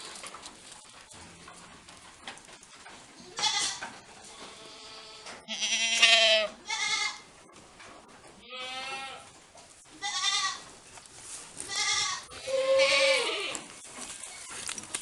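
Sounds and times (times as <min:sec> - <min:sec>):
goats bleating: 0:03.2 - 0:07.3, 0:08.4 - 0:09.3, 0:10.0 - 0:10.6, 0:11.6 - 0:13.7.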